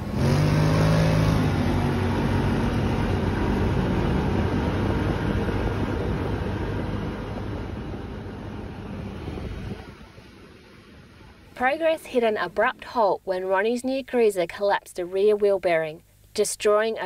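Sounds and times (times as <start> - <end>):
quad bike engine pulling away: 0.0 - 7.2.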